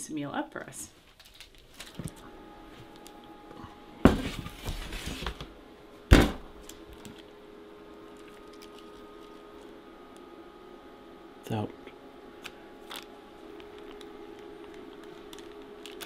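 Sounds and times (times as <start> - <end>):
scraping and rustling: 4.2 - 5.5.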